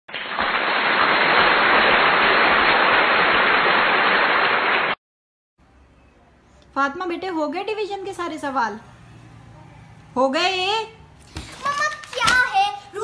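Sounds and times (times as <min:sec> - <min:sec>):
crowd applause: 0:00.1 - 0:05.0.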